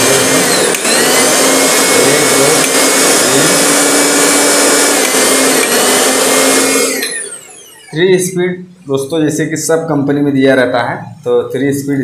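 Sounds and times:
mixer grinder motor whine: 0.0s - 8.2s.

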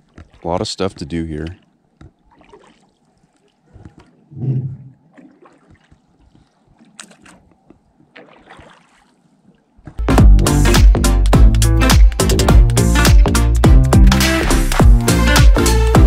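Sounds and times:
paddle splashes: 0.0s - 4.3s, 4.9s - 10.0s
water lapping against hull: 0.0s - 10.0s.

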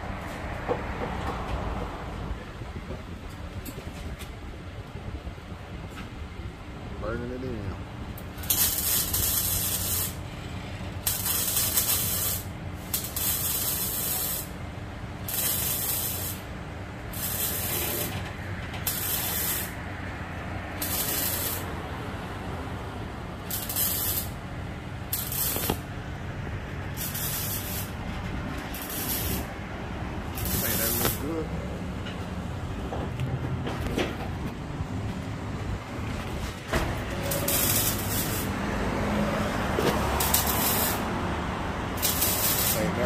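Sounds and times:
arc welder crackling: 8.0s - 32.0s, 36.2s - 43.0s.

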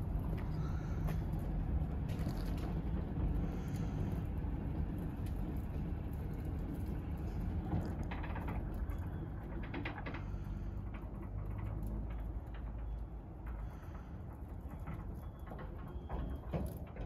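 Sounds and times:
sliding gate clicking and rattling: 6.4s - 17.0s.

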